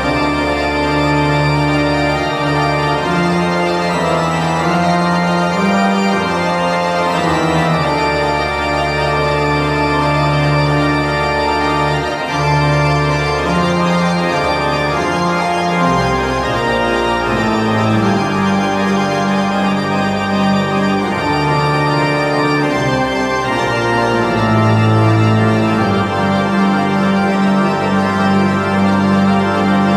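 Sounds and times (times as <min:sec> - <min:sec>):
pipe organ chords: 0:00.0 - 0:29.9.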